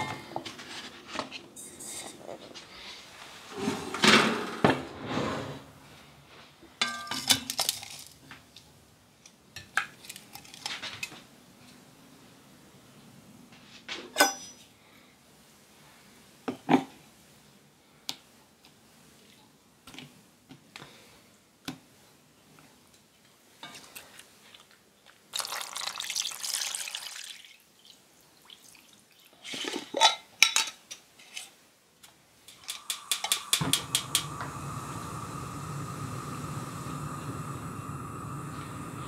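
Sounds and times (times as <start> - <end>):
gas burner hissing: 1.6 - 6.0, 32.5 - 39.0
water pouring into a pot: 25.3 - 29.3, 32.5 - 39.0
metal pot clanking: 32.5 - 34.3
gas stove igniter clicking: 32.5 - 39.0.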